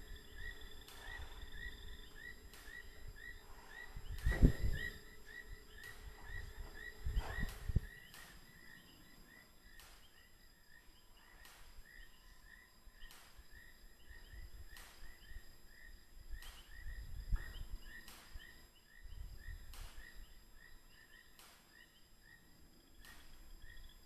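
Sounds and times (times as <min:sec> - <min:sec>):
low rumbling noise: 0:00.0 - 0:08.8.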